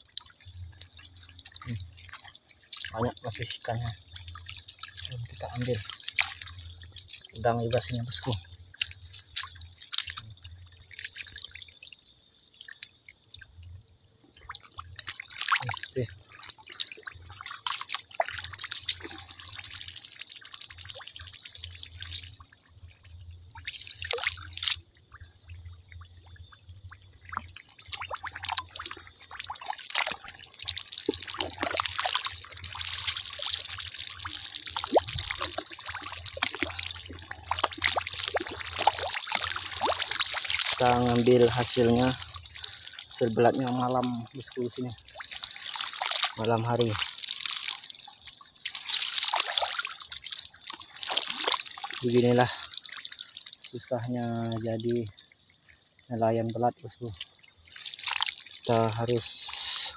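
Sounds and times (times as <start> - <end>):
water splashing and sloshing: 0.0 - 59.9
steady high-pitched hiss: 49.4 - 59.9.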